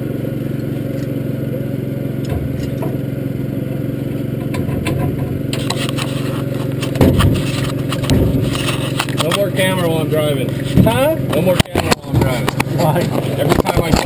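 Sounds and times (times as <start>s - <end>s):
race car engine idling: 0.0s - 14.0s.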